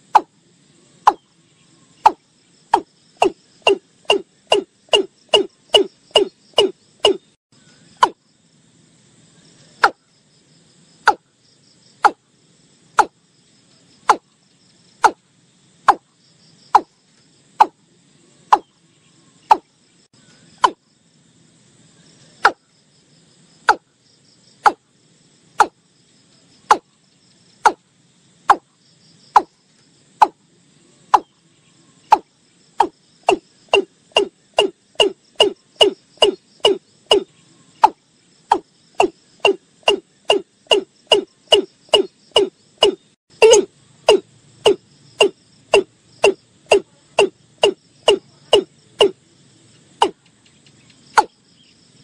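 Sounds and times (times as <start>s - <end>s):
faint insects: 0.0s - 52.0s
bird calling clipped notes: 50.0s - 51.3s.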